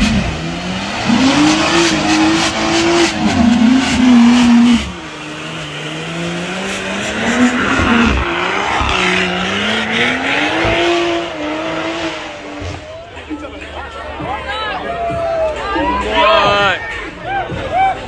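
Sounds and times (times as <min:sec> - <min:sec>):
car engine revving high: 0:00.0 - 0:12.8.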